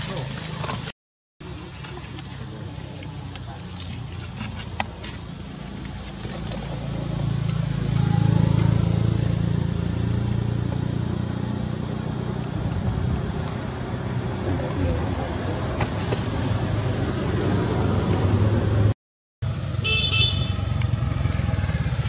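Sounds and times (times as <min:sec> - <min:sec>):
passing vehicle engine rumble: 0:01.5 - 0:22.0.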